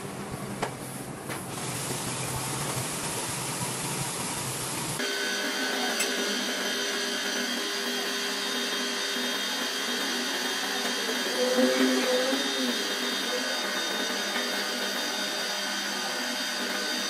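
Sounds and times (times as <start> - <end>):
spray gun hissing: 1.5 - 5.2
electric motor whine: 5.0 - 17.0.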